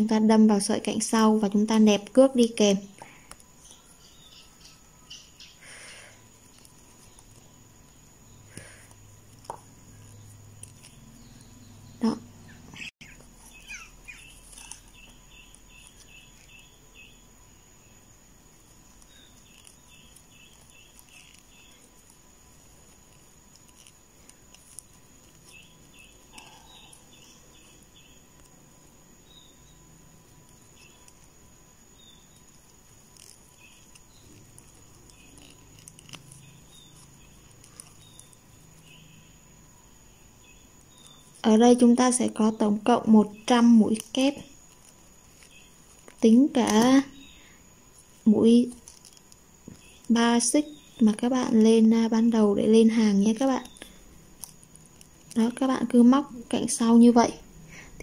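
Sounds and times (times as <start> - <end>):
small animal chirping: 9.4 - 17.2, 32.2 - 39.3.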